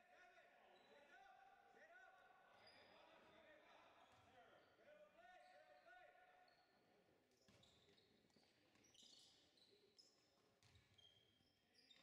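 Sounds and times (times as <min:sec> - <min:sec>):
sneakers squeaking on gym floor: 0:07.5 - 0:11.4.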